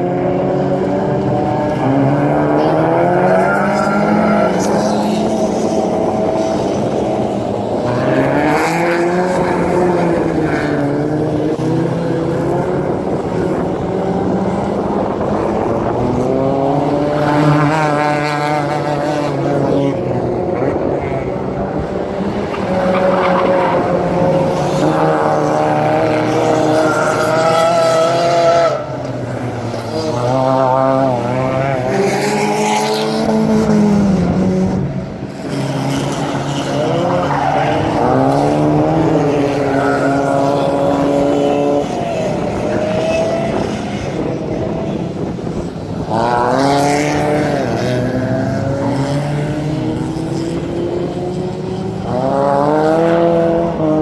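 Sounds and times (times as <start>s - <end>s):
race car engines revving: 0.0s - 54.0s.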